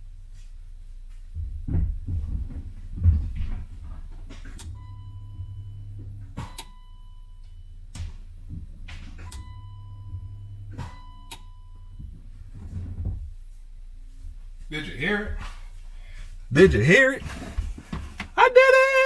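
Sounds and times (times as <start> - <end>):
fuel pump hum and whine: 0.0 - 19.0.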